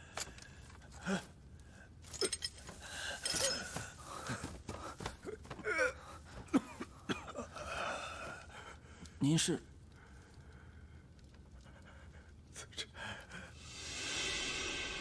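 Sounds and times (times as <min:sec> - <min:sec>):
man coughing: 0:06.5 - 0:07.5.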